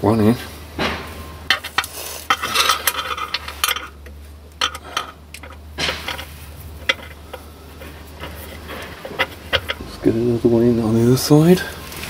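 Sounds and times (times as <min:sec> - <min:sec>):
metal tool clinking on bolts: 0:01.5 - 0:09.8.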